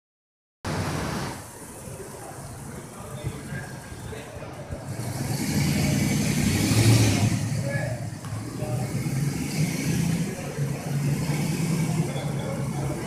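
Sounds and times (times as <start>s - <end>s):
car engine at low revs: 4.7s - 13.0s.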